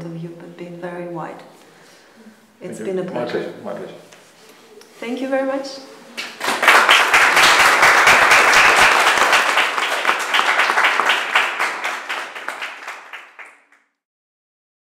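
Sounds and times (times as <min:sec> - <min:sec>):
small audience applauding: 0:06.2 - 0:14.0.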